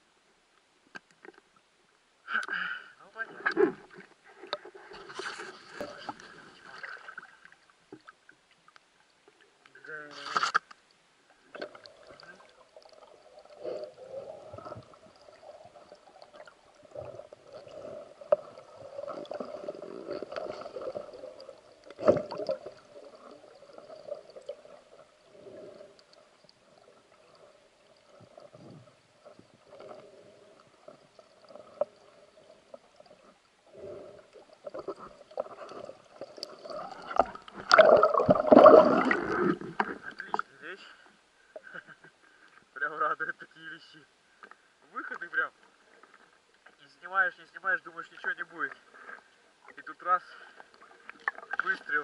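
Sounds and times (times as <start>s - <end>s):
churning water: 34.6s - 40.4s.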